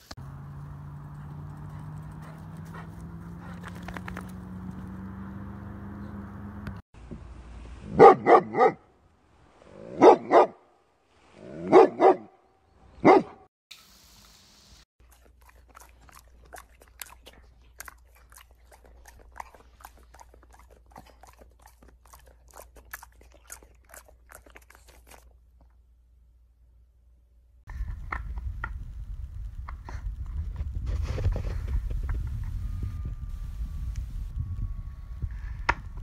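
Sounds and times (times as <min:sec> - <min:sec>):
dog barking: 0:07.9 - 0:08.8, 0:09.9 - 0:10.6, 0:11.6 - 0:12.4, 0:13.0 - 0:13.5.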